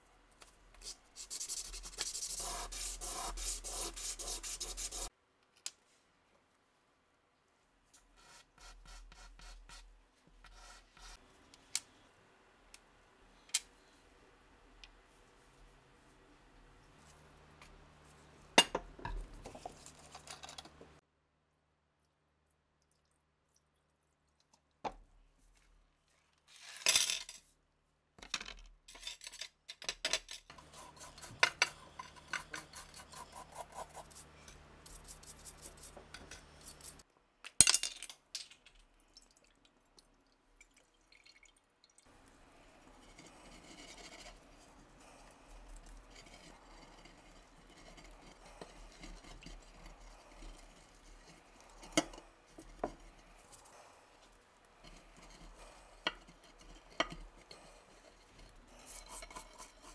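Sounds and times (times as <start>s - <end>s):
liquid pouring into glass dish: 39.1s - 42.1s.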